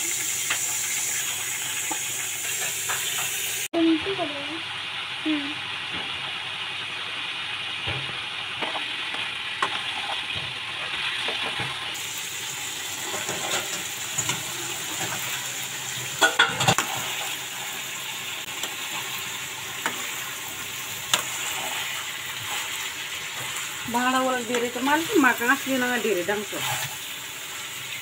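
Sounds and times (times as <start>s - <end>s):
chicken sizzling in oil: 0.0s - 28.0s
metal spatula scraping pan: 13.0s - 15.4s.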